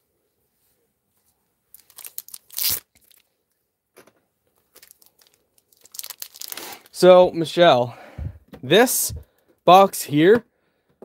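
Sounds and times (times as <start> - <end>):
card packaging crinkling and tearing: 1.7 - 3.3, 4.6 - 7.1.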